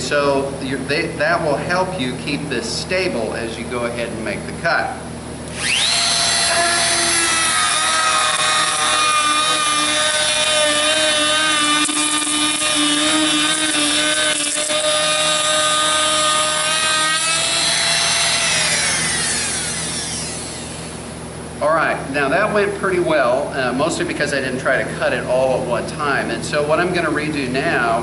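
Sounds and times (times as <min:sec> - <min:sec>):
router whining cutting wood: 0:05.5 - 0:21.0
router winding down: 0:05.5 - 0:21.1.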